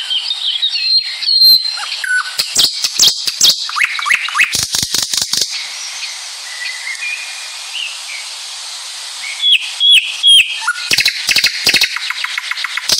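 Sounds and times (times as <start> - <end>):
birdsong whistles: 0.0 - 8.0, 9.2 - 12.9
steady hiss: 0.0 - 12.9.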